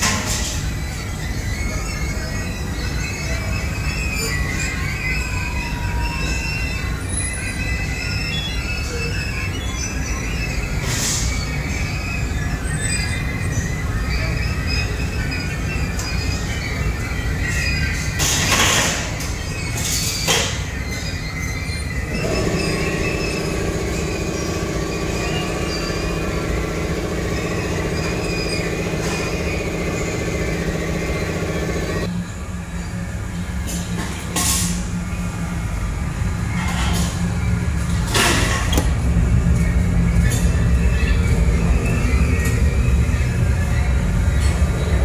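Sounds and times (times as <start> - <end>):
machine whine: 0.0 - 34.1
conveyor line mechanical rumble: 0.0 - 45.0.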